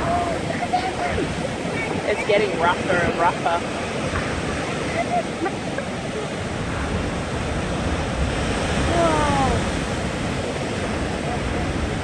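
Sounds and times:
surf washing against rocks: 0.0 - 12.0
person exclaiming: 8.9 - 9.6.

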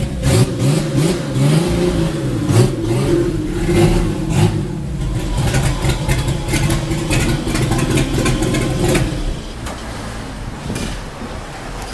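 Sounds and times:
car engine idling: 0.0 - 11.9.

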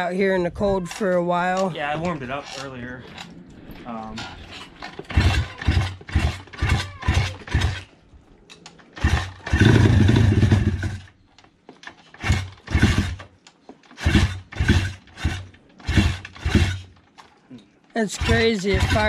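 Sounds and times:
dirt bike engine kick-started: 2.2 - 7.9, 8.8 - 11.2, 11.8 - 17.3, 18.0 - 19.0.

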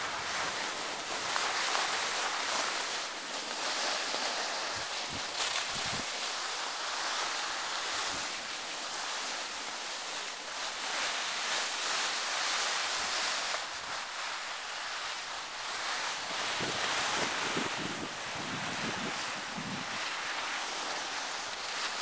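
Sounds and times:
skis sliding over snow: 0.0 - 22.0
wind buffeting microphone: 4.6 - 6.1, 16.4 - 20.1.

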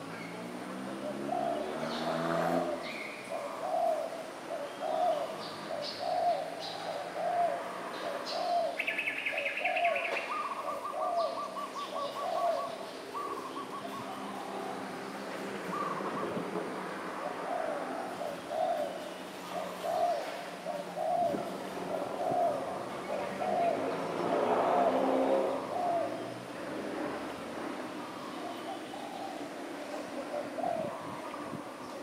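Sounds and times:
doves cooing: 0.0 - 32.0.

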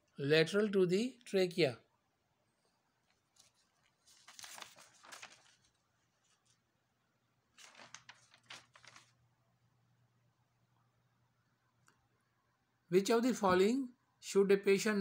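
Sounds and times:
paper rustling and crinkling: 3.0 - 6.7, 7.5 - 9.2.

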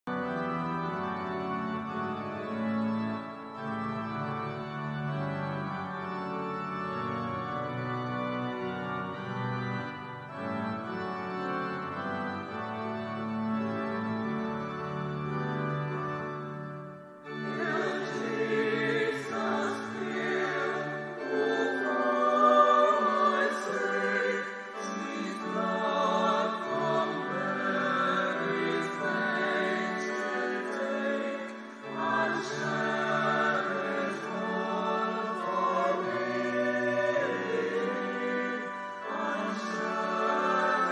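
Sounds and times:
organ chords: 0.1 - 40.9
choir singing: 17.3 - 40.9.

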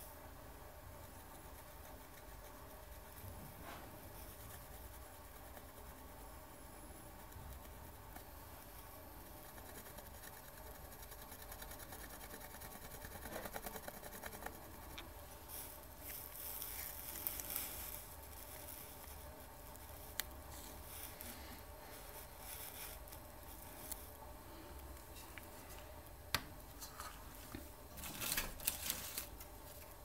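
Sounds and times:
pencil scratching on tape: 0.9 - 3.3, 7.1 - 15.0.

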